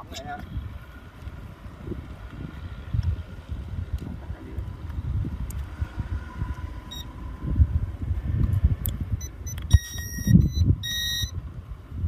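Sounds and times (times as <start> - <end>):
wind rumbling on microphone: 0.0 - 12.0
remote controller beeps: 9.2 - 11.4.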